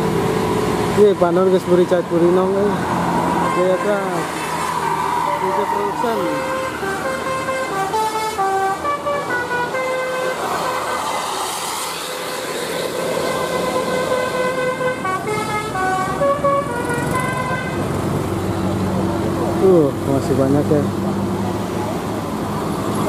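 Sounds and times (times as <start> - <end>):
passing traffic: 0.0 - 23.0
musical bus horn melody: 3.4 - 4.3, 6.1 - 11.0, 13.1 - 18.0.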